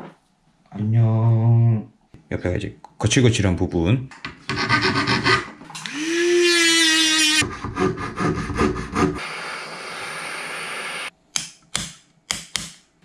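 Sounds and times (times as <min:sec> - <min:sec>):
rotary tool whining: 0:05.8 - 0:07.5
butane torch hissing: 0:09.2 - 0:11.1.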